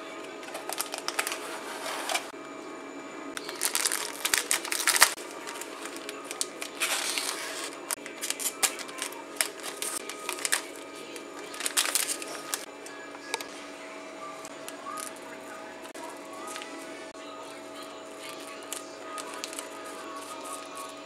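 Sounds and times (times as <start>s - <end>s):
plastic packaging crinkling: 0.4s - 2.3s, 3.4s - 12.7s, 18.2s - 20.9s
scissors cutting plastic: 3.4s - 10.8s, 11.4s - 12.7s.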